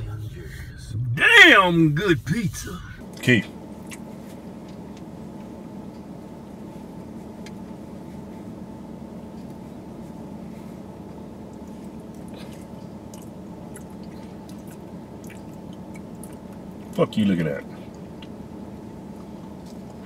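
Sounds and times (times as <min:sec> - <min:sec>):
car cabin hum: 0:00.0 - 0:20.0
person chewing food: 0:11.5 - 0:17.0.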